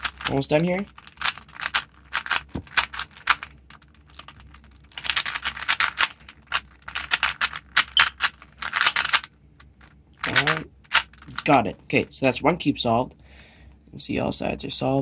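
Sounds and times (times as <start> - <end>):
puzzle cube clicking as turned: 0.0 - 0.3, 0.9 - 11.5.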